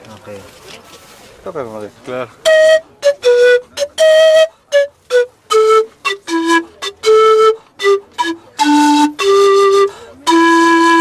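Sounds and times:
panpipe melody: 0:02.4 - 0:11.0.

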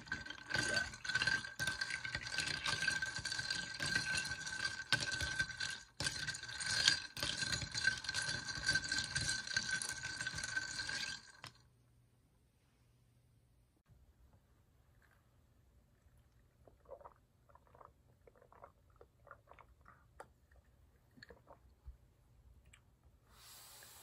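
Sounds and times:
ice cubes clinking in glass: 0:00.0 - 0:11.6.

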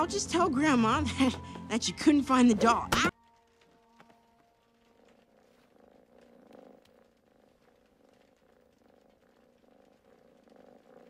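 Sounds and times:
cat purring: 0:03.8 - 0:11.0.

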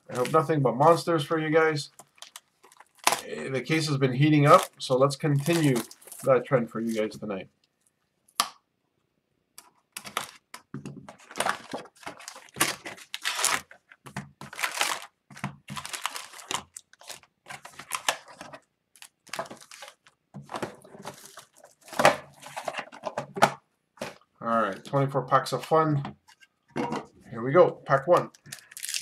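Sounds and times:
card packs crinkling and rustling: 0:00.0 - 0:01.0, 0:01.9 - 0:07.2, 0:09.6 - 0:24.3, 0:27.9 - 0:29.0.

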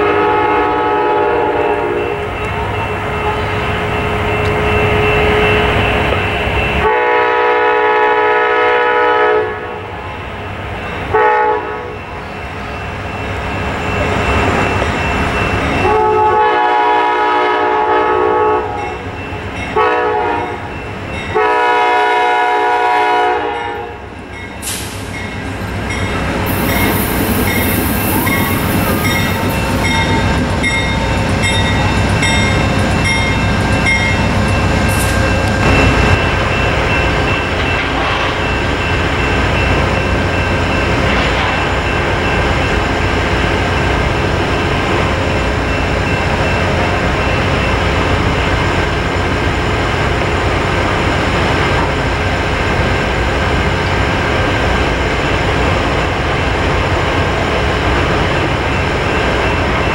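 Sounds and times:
locomotive air horn blasts: 0:00.0 - 0:03.7, 0:06.8 - 0:09.8, 0:11.1 - 0:11.9, 0:15.8 - 0:18.8, 0:19.8 - 0:20.6, 0:21.4 - 0:24.0
train rumbling by: 0:00.0 - 0:59.9.

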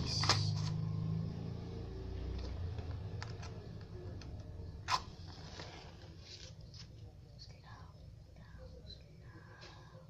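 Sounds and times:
vehicle engine hum: 0:00.0 - 0:06.2.

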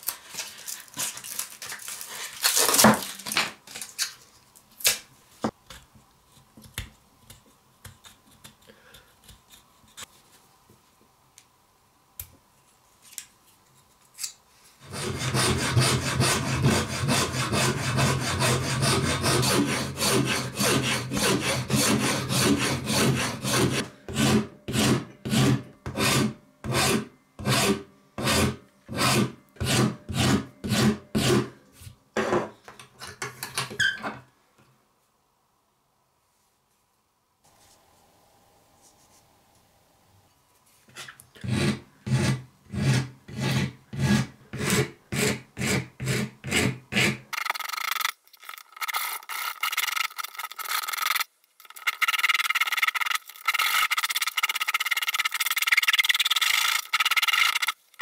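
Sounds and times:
hand file rasping wood: 0:14.8 - 0:31.5, 0:41.4 - 0:47.2
sandpaper rubbing on metal: 0:47.0 - 0:57.8.

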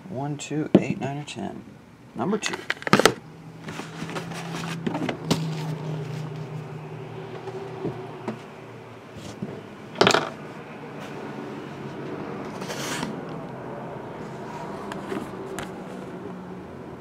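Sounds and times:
steady low hum: 0:00.0 - 0:17.0
plastic and cardboard rustles: 0:02.4 - 0:06.6.

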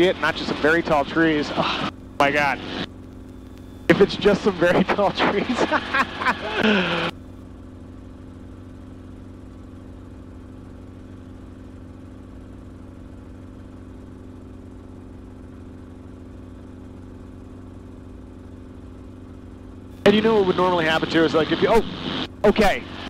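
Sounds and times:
helicopter engine and rotor drone: 0:00.0 - 0:23.0.

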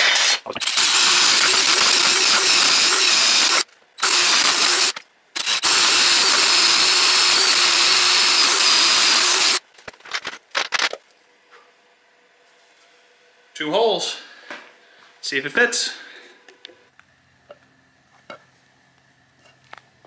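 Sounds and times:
cordless drill boring into wood: 0:00.6 - 0:09.6.

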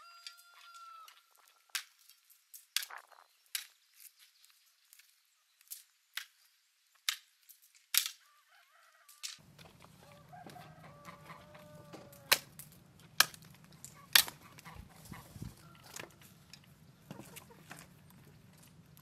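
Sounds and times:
hens clucking: 0:09.4 - 0:19.0.

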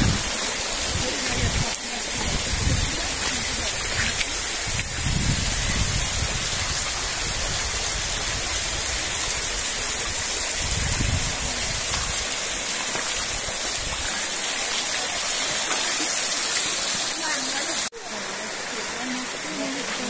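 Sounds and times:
low rumbles on microphone: 0:00.0 - 0:08.4.

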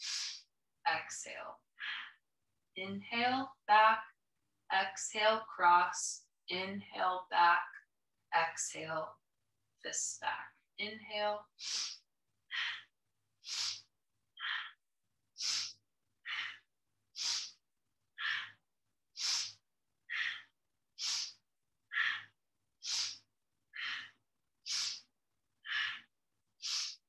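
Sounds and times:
woman breathing hard: 0:01.8 - 0:02.2, 0:11.6 - 0:14.8, 0:15.4 - 0:17.6, 0:18.2 - 0:27.0.

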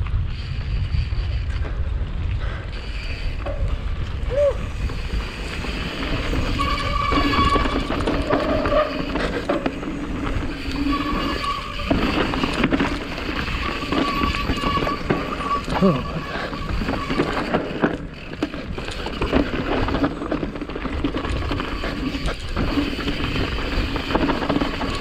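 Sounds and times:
wind on microphone: 0:00.0 - 0:17.6
tyres rumbling on dirt: 0:00.4 - 0:25.0.

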